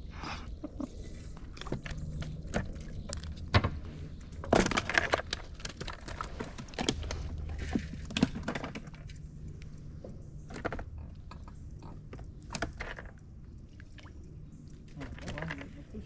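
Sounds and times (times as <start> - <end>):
clicks and knocks in boat: 1.3 - 9.3, 10.0 - 13.3.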